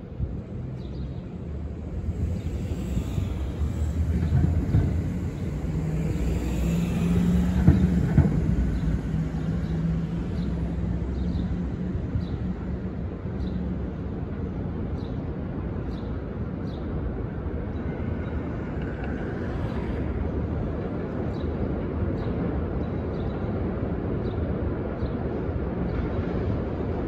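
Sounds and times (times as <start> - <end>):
subway train rumble: 0.0 - 27.0.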